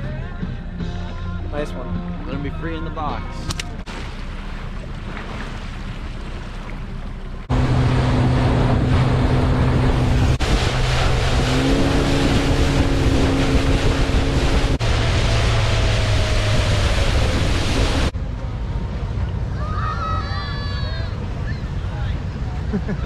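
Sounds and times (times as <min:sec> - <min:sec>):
wind and water rushing: 0:03.0 - 0:22.7
outboard engine running: 0:03.4 - 0:19.6.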